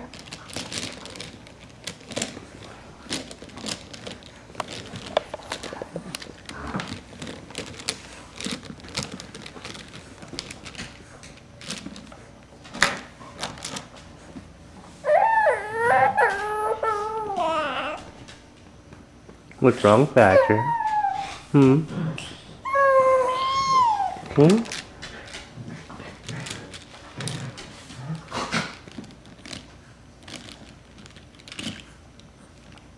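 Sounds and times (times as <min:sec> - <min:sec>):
baby crying loudly: 0:15.0 - 0:18.1, 0:20.2 - 0:21.4, 0:22.6 - 0:24.3.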